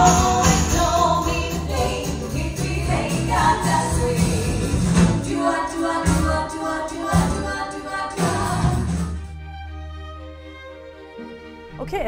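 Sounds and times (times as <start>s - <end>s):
live pop band playing: 0.0s - 6.5s
female vocal trio singing: 0.0s - 8.9s.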